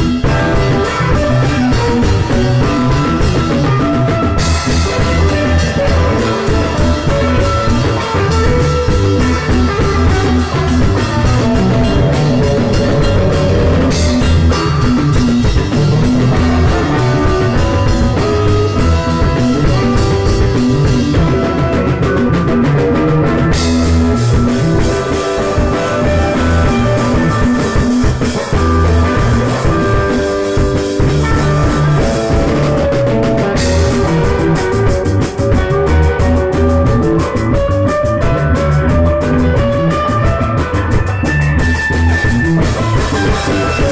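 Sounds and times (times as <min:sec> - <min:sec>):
rock band playing: 0:00.0 - 0:43.9.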